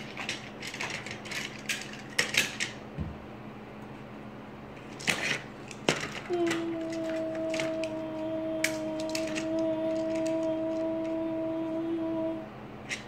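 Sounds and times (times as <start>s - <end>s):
plastic clicking and rattling: 0.0s - 2.8s, 8.6s - 10.8s.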